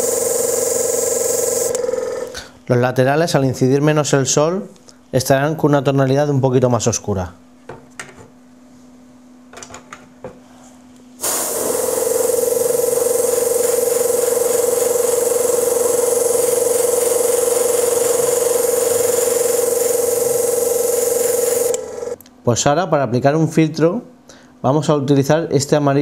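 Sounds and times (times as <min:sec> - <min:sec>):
airbrush spraying hiss: 0:11.2 - 0:22.2.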